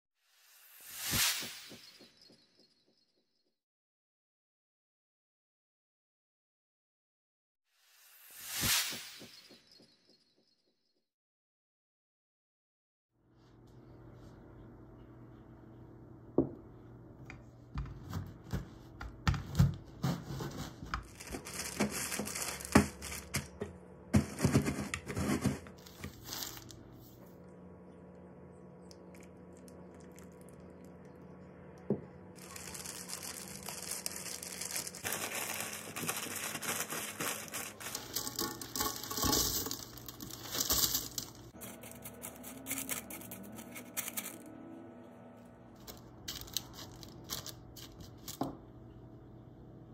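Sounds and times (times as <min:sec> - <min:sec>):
plastic bag crinkling: 0:20.3 - 0:26.8, 0:32.4 - 0:44.5, 0:45.8 - 0:48.5
cookies crunching: 0:32.4 - 0:44.4, 0:45.8 - 0:48.4.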